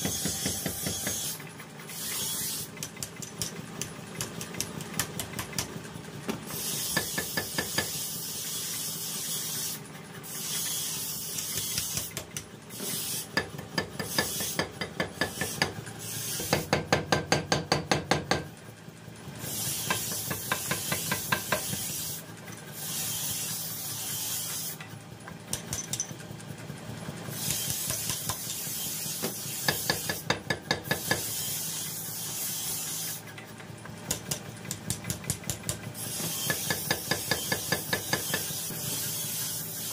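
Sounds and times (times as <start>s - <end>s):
power hammer striking: 0.0s - 1.4s, 2.1s - 8.0s, 11.3s - 18.6s, 19.5s - 22.1s, 24.5s - 26.2s, 27.4s - 31.4s, 33.8s - 39.6s.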